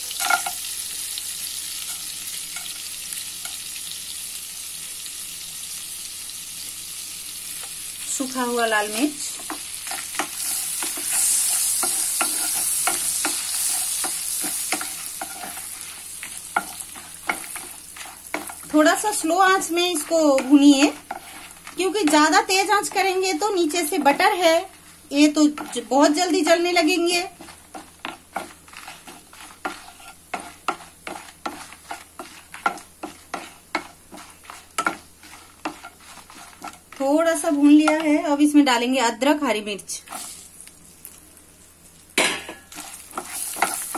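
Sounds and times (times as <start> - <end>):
spices sizzling in hot oil: 0.0 - 43.9
wooden spatula scraping pan: 9.4 - 38.2, 42.7 - 43.9.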